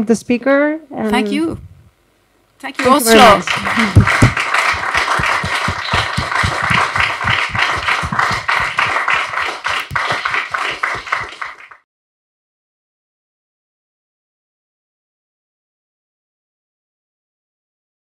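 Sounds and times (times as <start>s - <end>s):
audience applauding: 2.8s - 11.8s.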